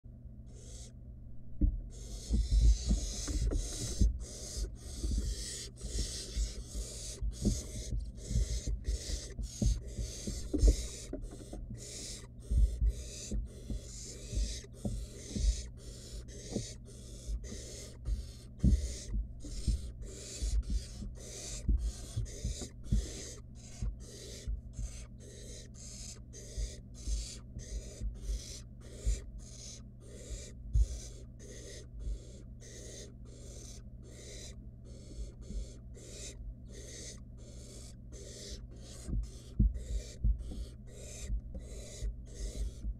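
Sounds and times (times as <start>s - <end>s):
steady low hum: 0.1s - 42.9s
owl chicks hissing begging calls: 0.5s - 1.0s, 1.9s - 42.9s
dull knocks in wooden nest box: 1.5s - 29.8s, 38.8s - 42.9s.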